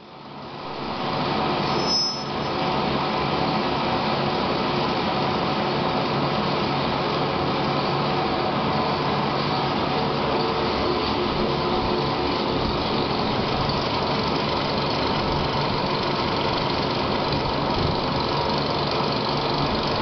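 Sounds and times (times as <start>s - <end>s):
lathe machine hum: 0.1s - 20.0s
brief high whistle: 1.6s - 2.6s.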